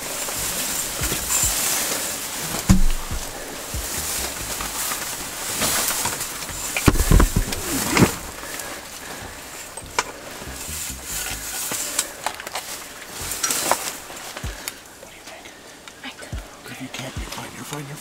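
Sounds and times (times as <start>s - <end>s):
low thumps: 0.0s - 1.6s, 2.5s - 8.6s, 9.2s - 11.7s
rustling and handling noise: 0.0s - 17.9s
clicks and knocks: 2.6s - 3.4s, 6.5s - 8.2s.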